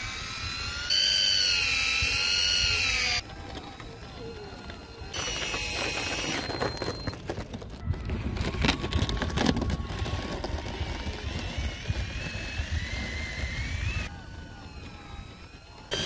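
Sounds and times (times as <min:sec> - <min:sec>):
faint wavering whine: 0:00.0 - 0:10.2, 0:10.8 - 0:16.0
wind rumbling on microphone: 0:07.7 - 0:15.6.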